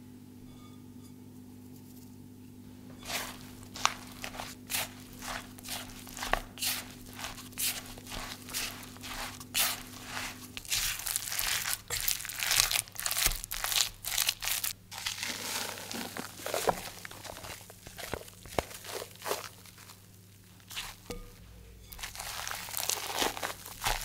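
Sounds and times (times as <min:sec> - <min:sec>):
spatula scraping glass bowl: 0:02.9 - 0:12.7, 0:15.0 - 0:19.2, 0:20.7 - 0:24.0.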